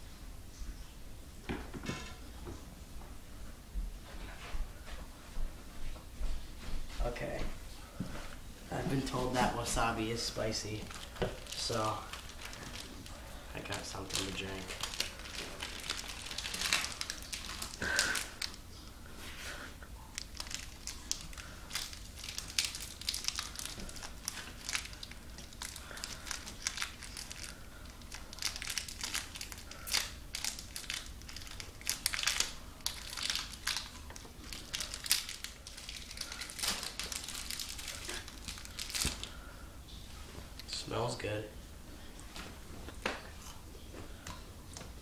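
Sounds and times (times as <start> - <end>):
wrapper crinkling: 9.0 - 19.0, 20.0 - 39.6.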